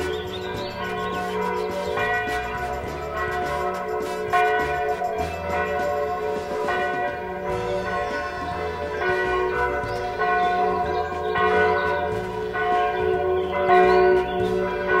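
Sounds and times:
bells ringing: 0.0s - 15.0s.

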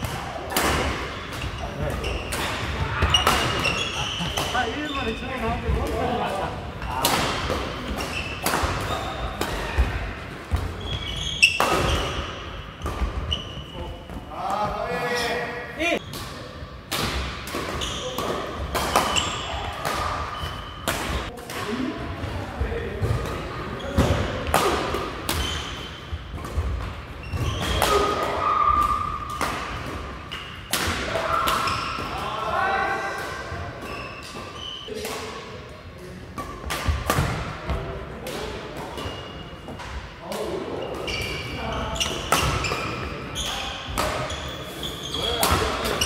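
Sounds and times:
racket hitting shuttlecock: 0.0s - 4.7s, 6.8s - 13.3s, 16.1s - 21.8s, 36.4s - 39.1s
shoes squeaking on floor: 1.1s - 5.9s, 7.8s - 9.4s, 10.7s - 14.3s, 17.8s - 18.2s, 19.0s - 19.6s, 25.4s - 26.2s, 27.2s - 27.8s, 31.6s - 32.2s, 33.8s - 35.0s, 40.8s - 46.0s
rackets smacking shuttlecock: 16.0s - 21.8s, 36.4s - 39.1s.

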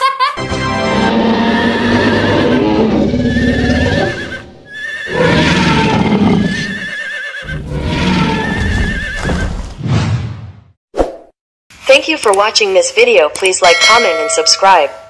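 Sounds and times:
horse neighing: 1.0s - 9.6s.

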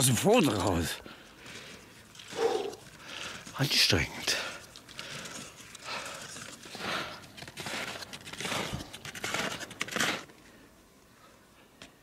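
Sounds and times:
hard breathing: 1.0s - 3.6s, 4.3s - 9.0s
footsteps crunching in snow: 4.5s - 10.3s.

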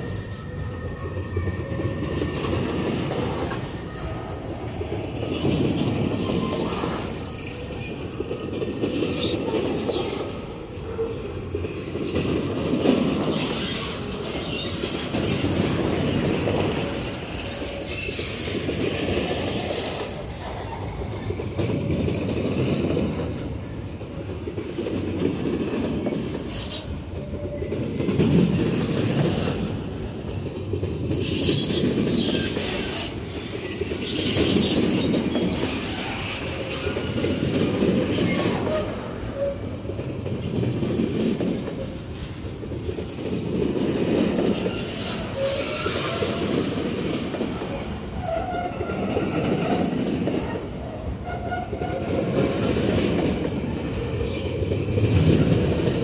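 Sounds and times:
freight train wheels clattering: 0.0s - 56.0s
high wheel squeals: 44.6s - 46.7s.

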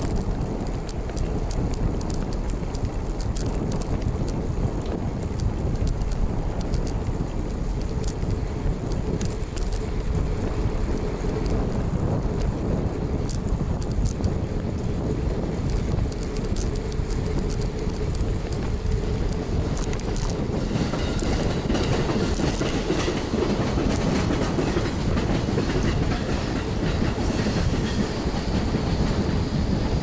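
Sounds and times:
light rattling clicks: 0.0s - 10.2s, 10.9s - 27.9s
bicycle tyre and wind noise: 0.0s - 30.0s.

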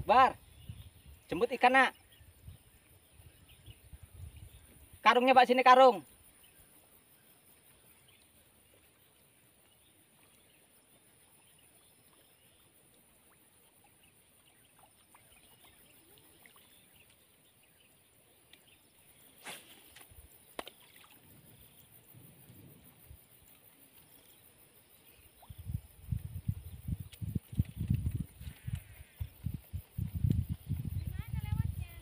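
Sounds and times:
faint chirps: 0.1s - 32.0s.

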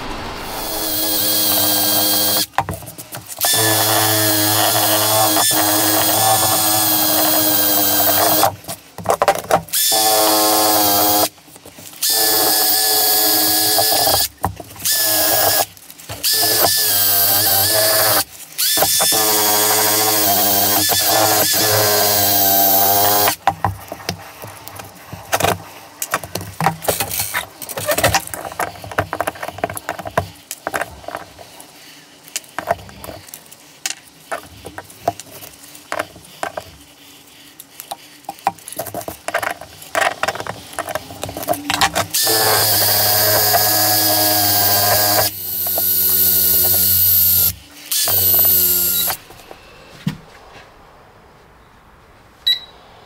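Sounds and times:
power tool running: 0.0s - 2.5s, 3.4s - 8.5s, 12.0s - 23.4s, 42.1s - 49.4s.

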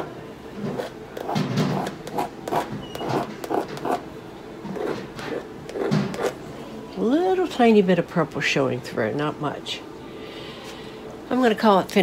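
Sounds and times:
painting tool scratching on canvas: 0.7s - 4.0s.

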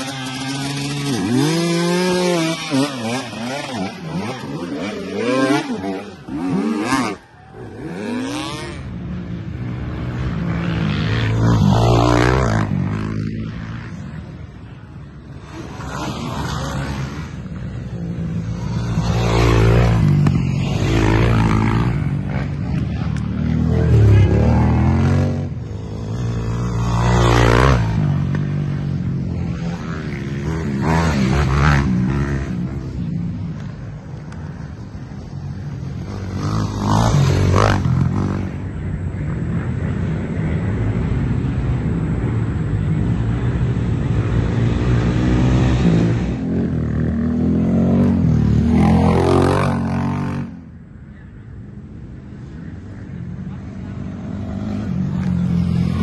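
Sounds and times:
dirt bike engine revving hard: 0.0s - 7.2s
atv engines revving past: 0.0s - 56.0s.

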